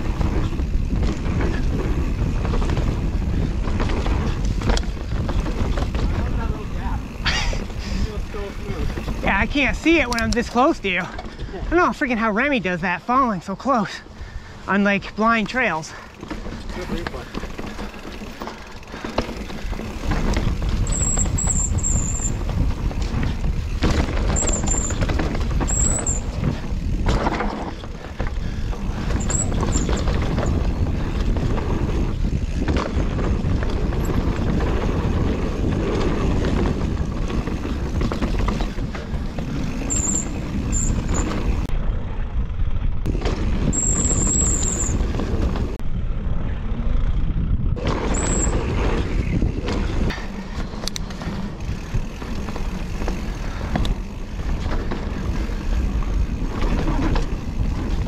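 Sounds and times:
bike tyres rumbling over dirt: 0:00.0 - 0:58.0
short high squeals: 0:20.9 - 0:22.4, 0:39.9 - 0:41.4, 0:43.8 - 0:45.0.

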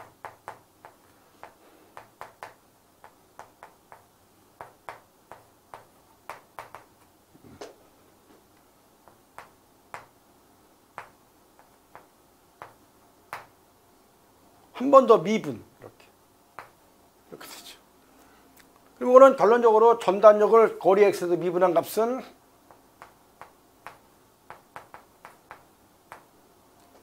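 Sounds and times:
chalk tapping on chalkboard: 0:00.0 - 0:07.1, 0:09.0 - 0:10.2, 0:10.9 - 0:13.5, 0:16.6 - 0:16.8, 0:22.7 - 0:26.3.

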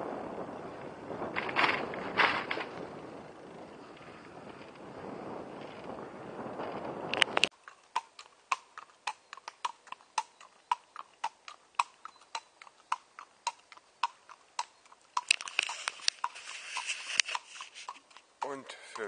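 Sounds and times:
hooves clip-clopping on pavement: 0:00.0 - 0:19.0
rustling: 0:15.0 - 0:18.3.

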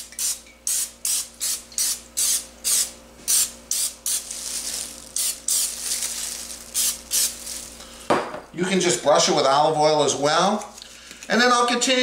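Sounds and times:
cooking spray hissing: 0:00.0 - 0:08.2.

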